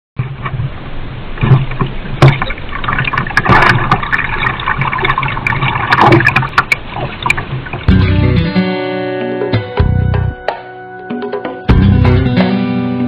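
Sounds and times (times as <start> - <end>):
water splashing around canoe hull: 0.2 - 8.0.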